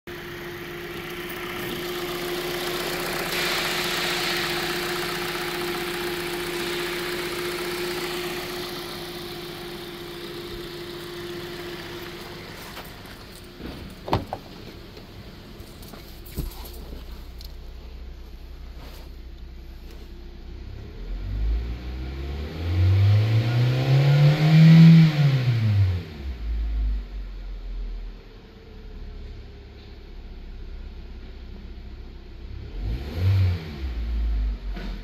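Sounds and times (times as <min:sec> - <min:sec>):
car engine idling: 0:00.1 - 0:21.2
engine whine: 0:00.1 - 0:27.2
sharp clunks: 0:13.6 - 0:14.8.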